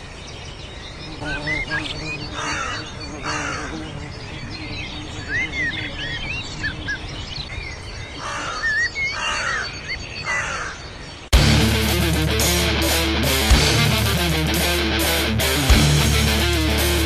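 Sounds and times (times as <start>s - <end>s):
birds chirping: 0.0s - 17.0s
harsh rasping bird calls: 1.0s - 17.0s
loud electric guitar music: 11.3s - 17.0s.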